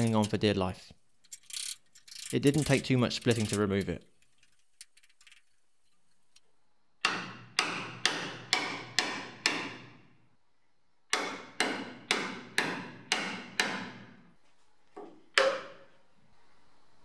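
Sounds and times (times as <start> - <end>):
hammer striking chisel on steel: 7.0 - 9.9, 11.1 - 14.1, 15.4 - 15.9.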